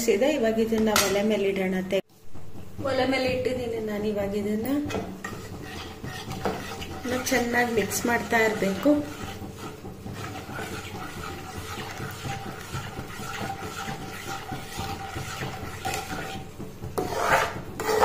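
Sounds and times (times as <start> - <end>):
metal spatula scraping pan: 4.6 - 18.0.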